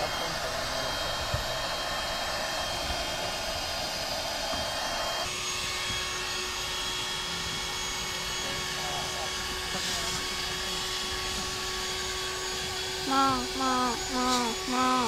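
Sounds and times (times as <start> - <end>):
electric air pump whirring: 0.0 - 15.0
steady hum: 12.8 - 15.0.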